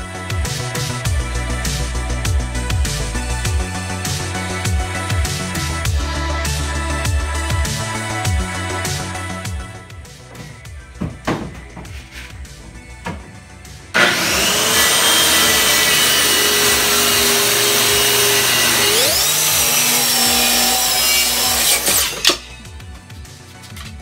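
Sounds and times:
circular saw cutting wood: 13.9 - 22.7.

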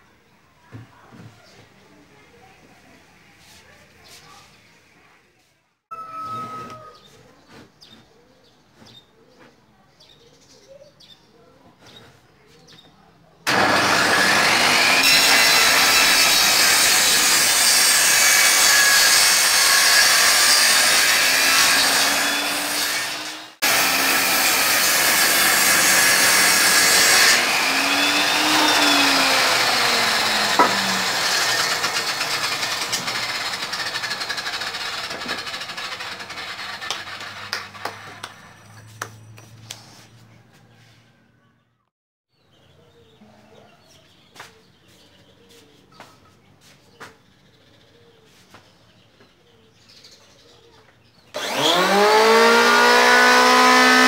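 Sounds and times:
table saw cutting wood: 13.5 - 38.4, 51.4 - 54.0.

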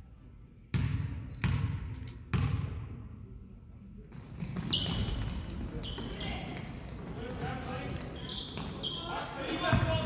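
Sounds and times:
sneaker squeaks: 4.1 - 10.0.

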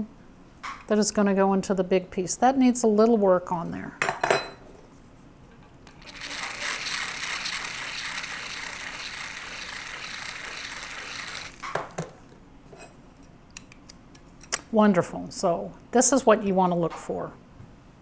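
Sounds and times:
rotary burr grinding: 5.9 - 12.1.

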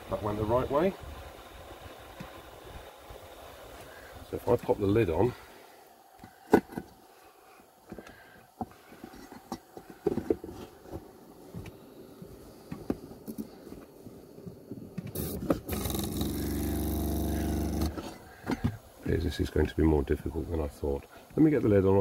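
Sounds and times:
loud buzzing hum: 15.2 - 18.0.

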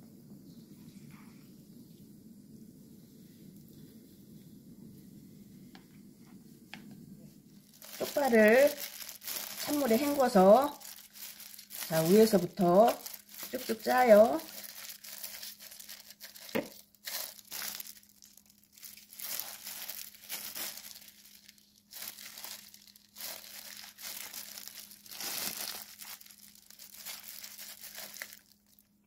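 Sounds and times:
faint steady hum: 0.0 - 29.0
plastic glove crinkling: 7.5 - 29.0.

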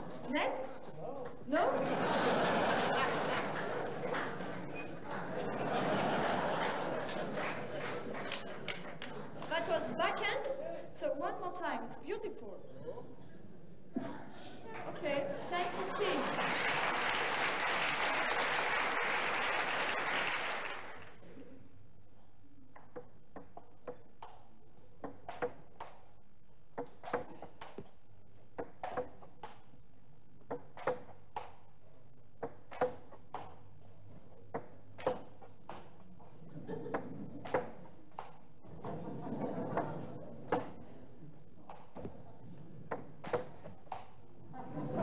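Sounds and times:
crowd noise: 0.0 - 11.0, 12.7 - 21.8, 36.0 - 45.0
applause: 3.0 - 5.3, 6.5 - 9.6, 15.5 - 21.2
table tennis ball hits: 22.7 - 26.1, 26.7 - 27.9, 28.6 - 29.7, 30.4 - 31.7, 32.4 - 33.7, 34.5 - 36.0, 36.9 - 39.0, 39.7 - 40.8, 42.9 - 44.2.

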